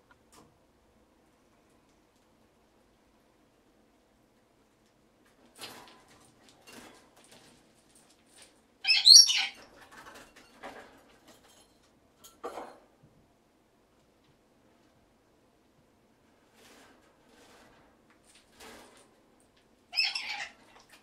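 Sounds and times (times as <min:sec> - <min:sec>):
parrot squawk: 0:08.8 - 0:09.6, 0:19.9 - 0:20.6.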